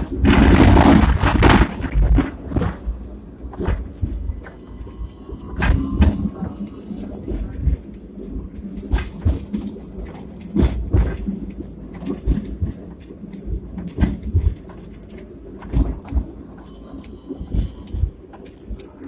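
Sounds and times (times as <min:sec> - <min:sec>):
tram rumbling on track: 0:00.0 - 0:19.0.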